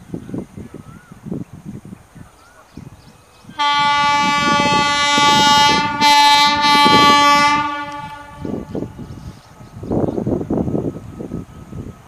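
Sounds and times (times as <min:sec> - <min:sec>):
locomotive horn blasts: 0:03.5 - 0:09.0.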